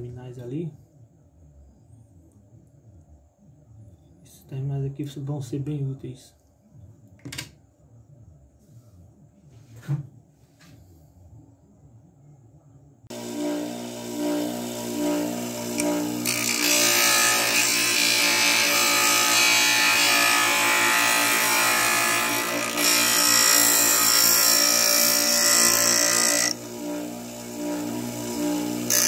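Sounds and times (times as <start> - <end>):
bench grinder motor humming: 13.1 - 29.0
wood grinding hiss: 13.1 - 29.0.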